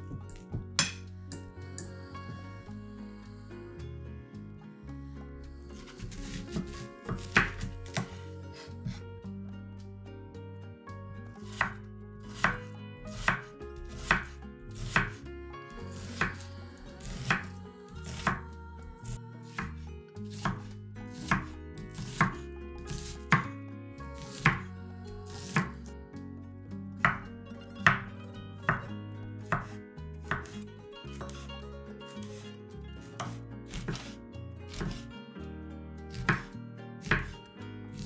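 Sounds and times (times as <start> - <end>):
knife slicing onion: 5.8 - 9.0, 11.4 - 23.5, 24.2 - 24.7, 25.3 - 25.8, 27.0 - 30.6, 31.2 - 31.5, 32.1 - 35.1, 36.1 - 37.4.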